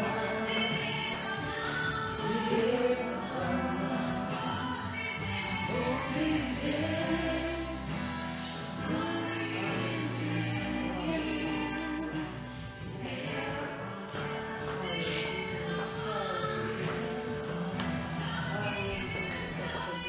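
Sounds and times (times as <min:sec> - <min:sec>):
women singing worship song: 0:00.0 - 0:20.0.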